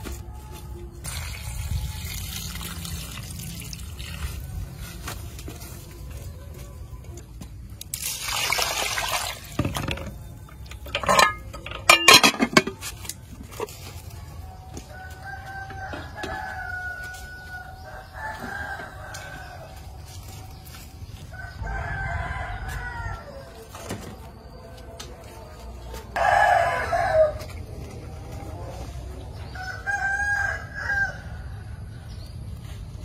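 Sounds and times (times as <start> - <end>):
roosters crowing: 13.8 - 24.5, 25.8 - 32.2.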